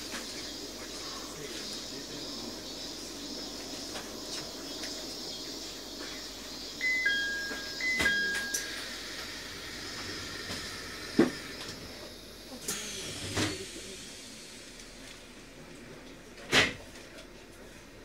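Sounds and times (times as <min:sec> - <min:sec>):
two-note falling door chime: 0:06.8 - 0:09.0
hiss of air from doors: 0:08.8 - 0:15.4.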